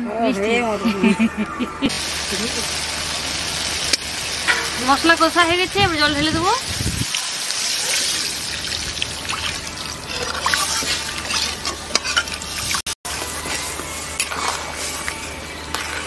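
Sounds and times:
water pouring into a wok: 1.9s - 15.1s
metal spatula scraping a pan: 10.0s - 16.0s.

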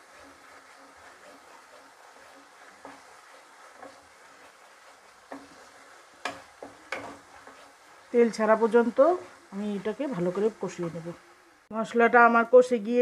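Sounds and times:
spatula scraping a pan: 0.0s - 11.4s
paste sizzling in oil: 0.0s - 13.0s.

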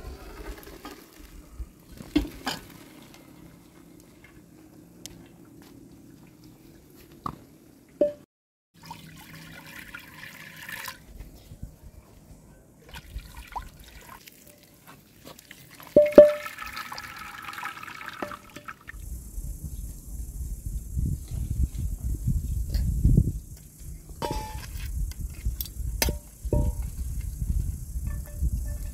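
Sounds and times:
water and rice pouring into colander: 8.8s - 11.1s, 15.3s - 18.9s
metal pots clanking: 15.9s - 16.8s, 24.2s - 24.6s.

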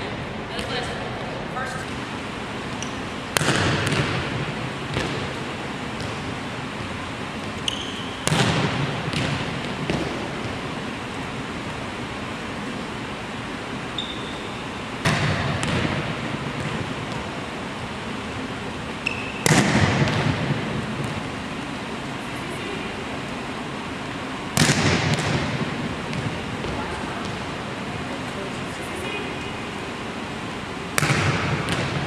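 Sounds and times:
sneaker squeak on floor: 2.7s - 3.1s, 7.6s - 8.3s, 14.0s - 14.8s, 19.0s - 19.5s
ball bouncing on floor: 2.7s - 5.3s, 31.0s - 32.0s
volleyball spike smack with echo: 3.3s - 5.3s, 8.1s - 10.6s, 15.0s - 17.2s, 19.1s - 21.2s, 24.5s - 27.4s, 30.9s - 32.0s.

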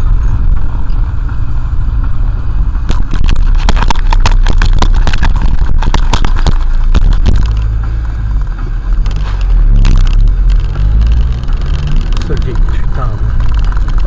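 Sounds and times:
engine and road rumble: 0.0s - 14.0s
rapid clicks and knocks: 2.8s - 14.0s.

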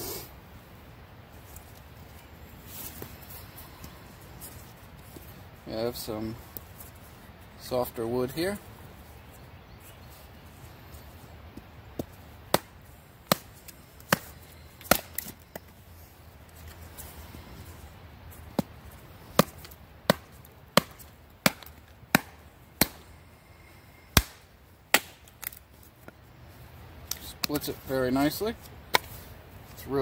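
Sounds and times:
axe and log knocking on stump: 19.4s - 23.0s.

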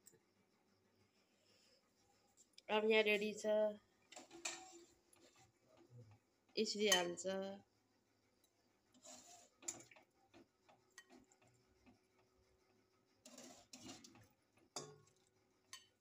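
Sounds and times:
ladle clinking against metal pot: 14.8s - 15.1s.

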